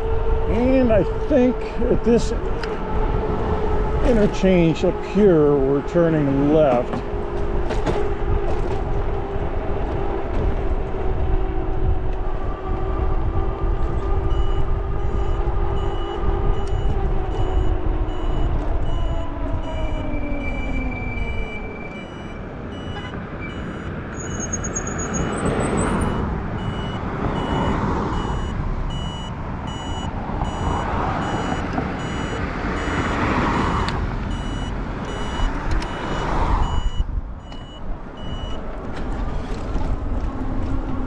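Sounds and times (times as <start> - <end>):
wind rumble on microphone: 0.0 - 24.1, 25.2 - 41.0
road noise: 0.0 - 41.0
turn signal beeping: 14.2 - 38.7.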